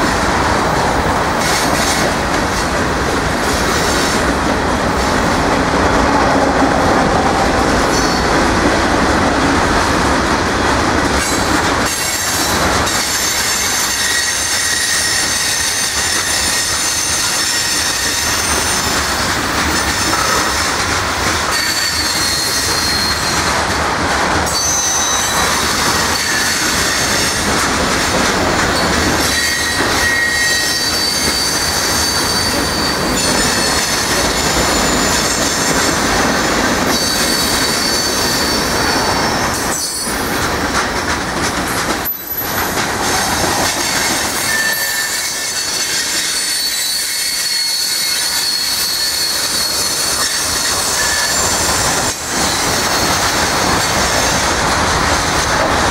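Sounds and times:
train wheels rumbling on rail: 0.0 - 55.9
high-pitched wheel squeals: 29.2 - 35.8, 44.4 - 51.5.

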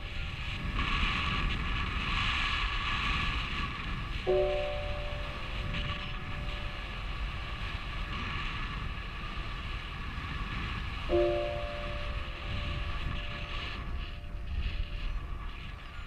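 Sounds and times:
wind rushing over microphone: 0.0 - 16.0
electronic multi-pitch tone: 4.3 - 8.5, 11.1 - 16.0.

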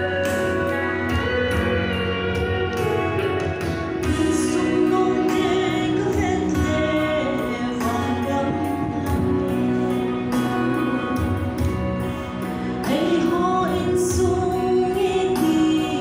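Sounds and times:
instrumental accompaniment with beat: 0.0 - 16.0
worship song singing: 4.0 - 11.8, 12.5 - 16.0.

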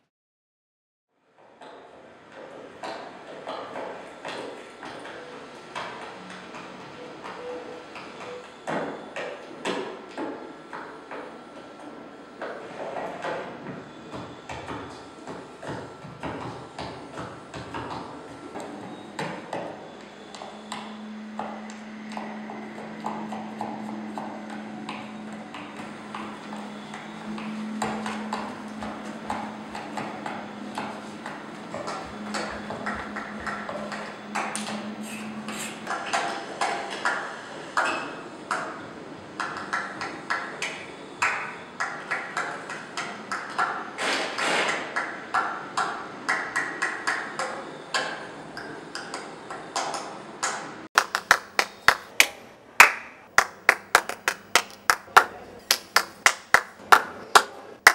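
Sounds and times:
hands clapping rhythmically: 46.3 - 47.2, 51.0 - 57.9.

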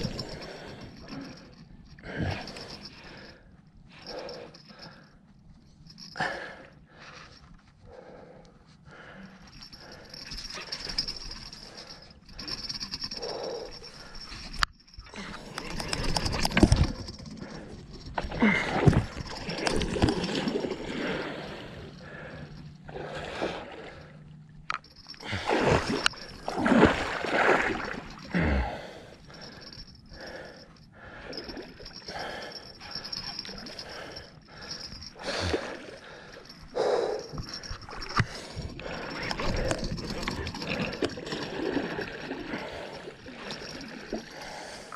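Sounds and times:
person gasping breaths: 0.0 - 5.2, 17.1 - 19.3, 20.9 - 24.1, 28.3 - 40.0, 42.5 - 44.9
water splashing and gurgling: 15.1 - 24.2, 25.0 - 30.6, 31.2 - 44.9.

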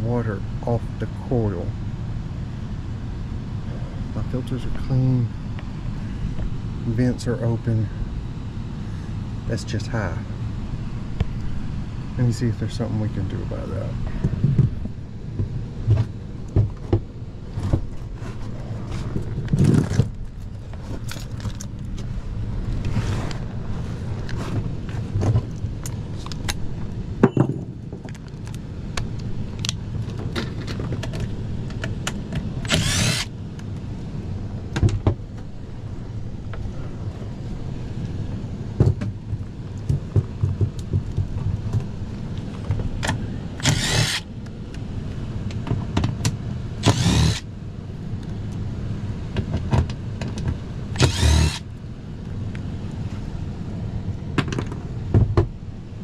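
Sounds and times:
small clicks and handling noises: 28.0 - 33.8
blower humming: 31.3 - 45.5, 46.5 - 49.3, 50.8 - 54.2
small motor whirring bursts: 32.7 - 33.3, 43.6 - 44.3, 46.8 - 47.5, 51.0 - 51.6.

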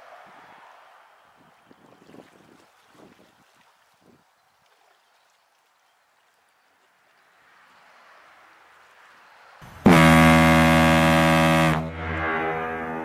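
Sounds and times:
sustained chord of music: 9.9 - 13.0.

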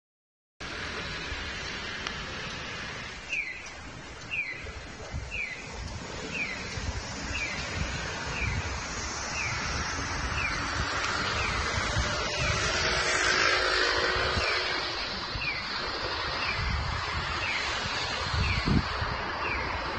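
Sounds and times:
street traffic noise: 0.6 - 19.9
pedestrian signal chirping: 3.2 - 6.7.

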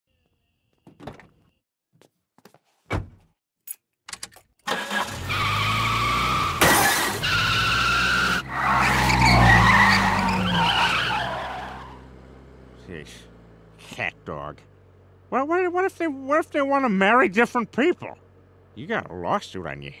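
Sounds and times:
car engine starting and running: 4.6 - 20.0.

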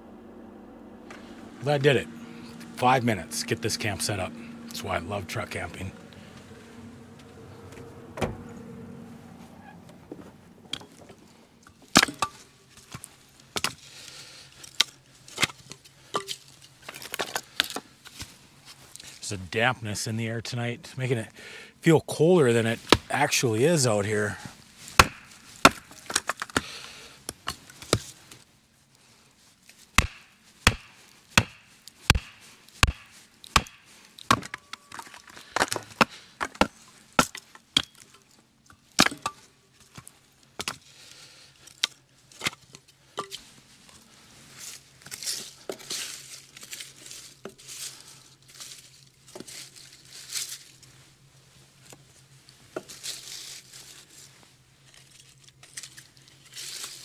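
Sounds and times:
hatchet chopping wood: 12.0 - 12.4, 25.0 - 26.7, 30.0 - 34.7, 35.6 - 38.0, 39.0 - 39.4
kindling rustling and clattering: 27.4 - 40.6, 41.6 - 57.0.

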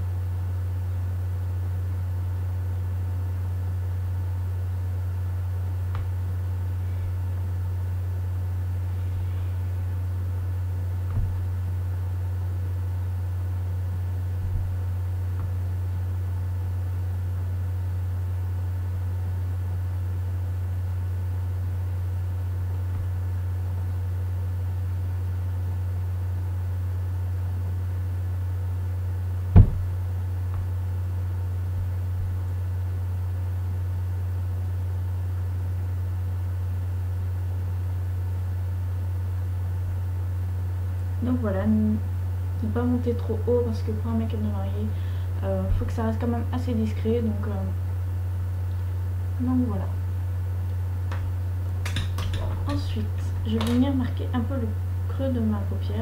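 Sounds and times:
steady low hum: 0.0 - 56.0
knocks: 29.5 - 30.0.

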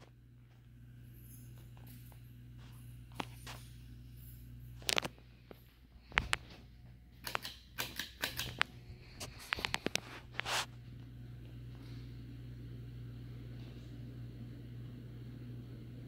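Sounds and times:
ceiling fan humming: 0.0 - 16.0
sharp clicks and rustles: 7.2 - 10.7.

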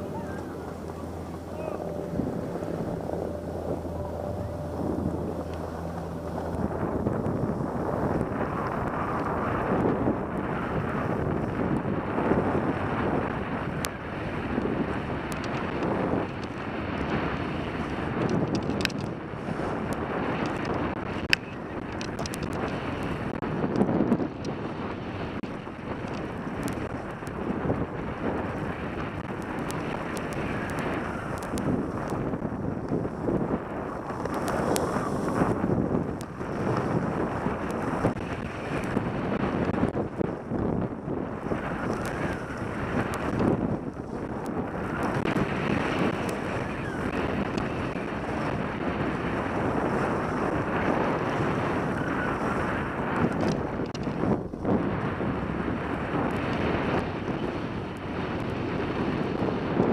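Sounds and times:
wind rushing over microphone: 0.0 - 59.9
skis sliding on packed snow: 24.8 - 57.2.

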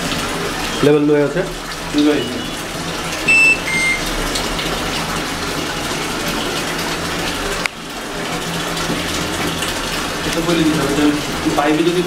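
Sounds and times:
short high beeps: 3.3 - 4.1
water gushing into washing machine: 4.6 - 12.0.

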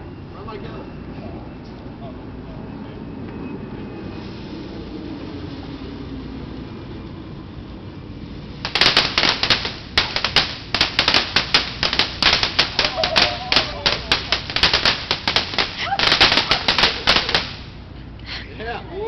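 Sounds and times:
fountain firework crackling: 8.2 - 17.9.

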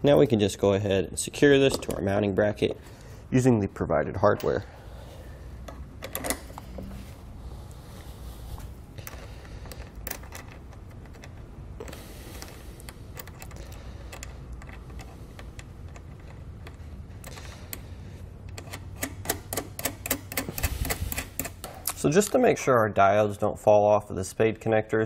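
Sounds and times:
metal clicks of bolt and nut: 5.6 - 6.9, 9.0 - 17.8, 18.5 - 22.0.

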